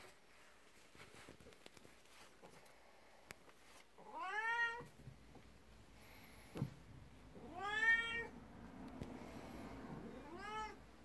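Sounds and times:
cat meowing: 4.0 - 4.9, 7.4 - 8.4, 10.0 - 10.9.

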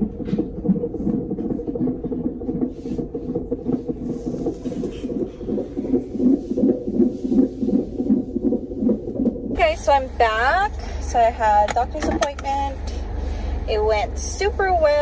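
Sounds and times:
doppler heartbeat whoosh: 0.0 - 11.0.

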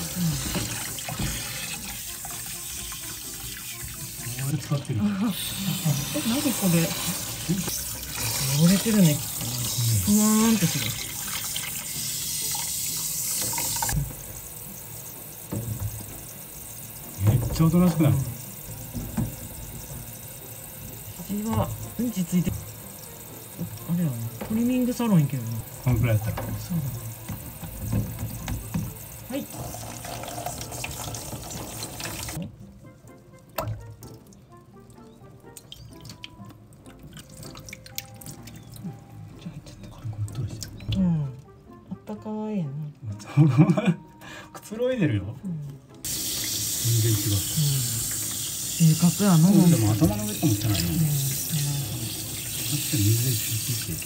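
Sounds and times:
shower head spraying water: 0.0 - 32.4, 46.1 - 54.0
water splashing in a basin: 35.0 - 39.0.

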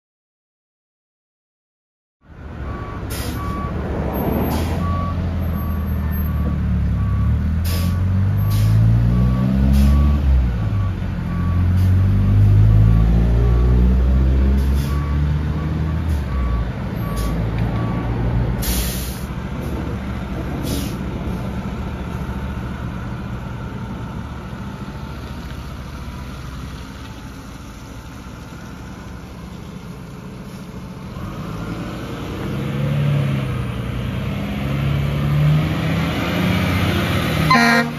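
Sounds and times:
diesel engine revving: 2.4 - 37.9
air brake hissing: 7.6 - 8.9, 18.6 - 19.3, 20.6 - 21.0.

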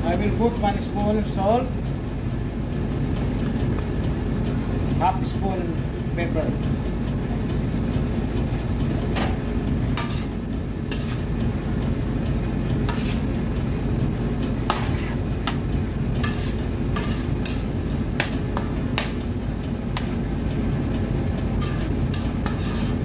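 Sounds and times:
frying pan sizzling: 9.0 - 23.0
metal spoon scraping a pan: 10.0 - 11.3, 12.8 - 13.3, 14.7 - 15.2, 16.2 - 17.8, 21.6 - 23.0.

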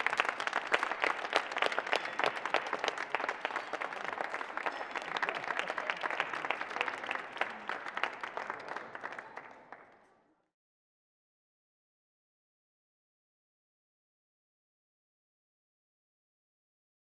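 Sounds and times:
people applauding: 0.0 - 10.3.

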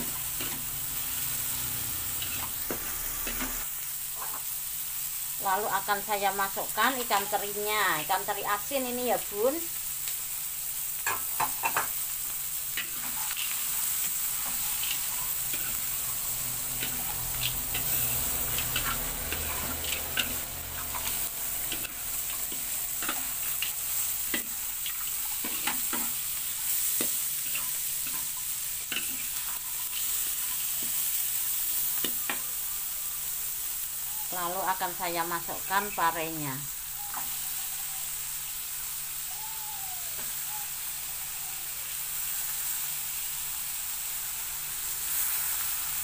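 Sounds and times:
metal spatula scraping a wok: 0.0 - 4.4, 12.7 - 32.4
food sizzling in oil: 0.0 - 46.0.

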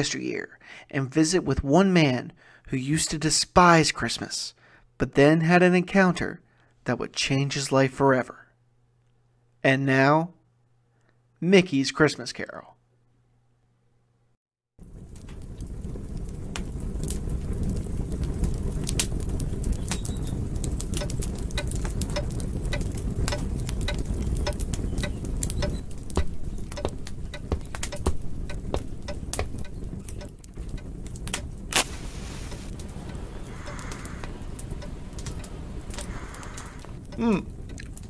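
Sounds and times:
low rumble: 14.8 - 38.0
wood fire crackling: 14.8 - 38.0.

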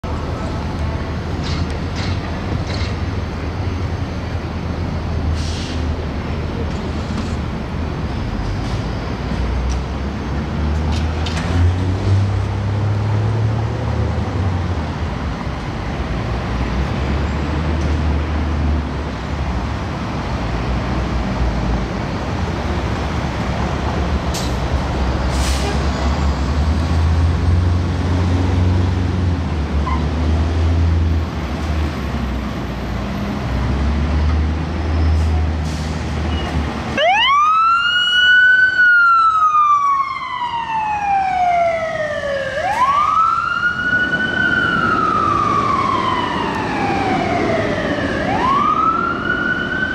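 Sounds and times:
diesel engine rumbling: 0.0 - 49.9
siren rising and falling: 37.0 - 49.9.

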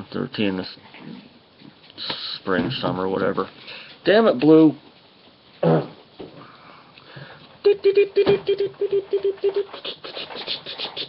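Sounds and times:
dog nasal snorts: 9.7 - 11.0.

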